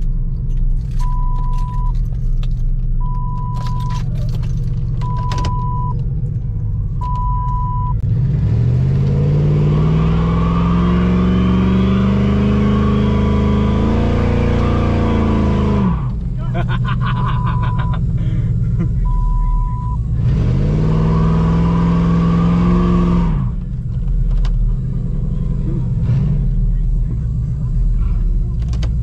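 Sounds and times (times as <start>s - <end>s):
car engine idling and revving: 0.0s - 29.0s
warning chime beeping: 19.1s - 20.0s.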